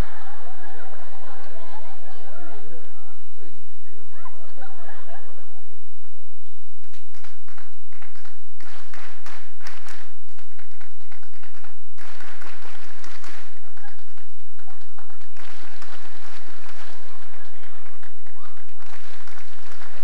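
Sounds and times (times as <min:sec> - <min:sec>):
audience clapping: 0:00.0 - 0:01.8, 0:06.8 - 0:20.0.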